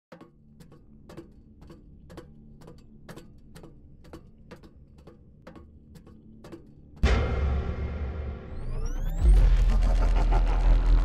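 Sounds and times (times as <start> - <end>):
low drone: 7.0 - 11.0.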